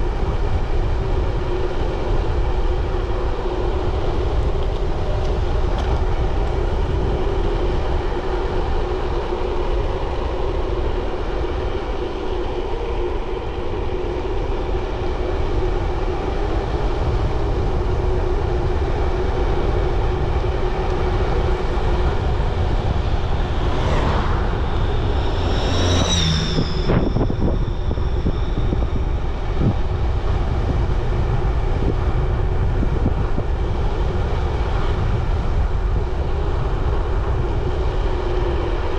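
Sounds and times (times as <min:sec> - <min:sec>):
wind on microphone: 0:00.0 - 0:38.9
something passing: 0:22.9 - 0:29.1
brief high squealing tone: 0:25.1 - 0:28.7.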